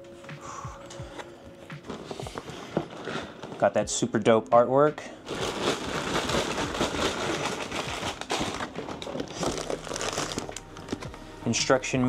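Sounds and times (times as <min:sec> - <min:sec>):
plastic bags crinkling: 0:01.8 - 0:04.2, 0:05.0 - 0:11.1.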